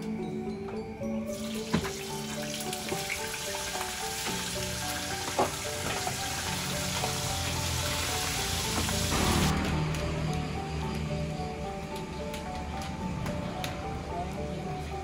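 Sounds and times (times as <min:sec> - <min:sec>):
food deep-frying in oil: 0:01.3 - 0:09.9.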